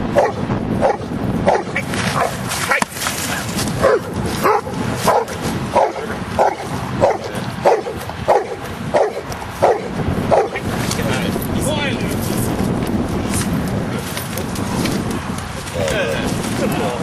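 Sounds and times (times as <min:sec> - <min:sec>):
dog barking: 0:00.1 - 0:02.9, 0:03.8 - 0:10.6.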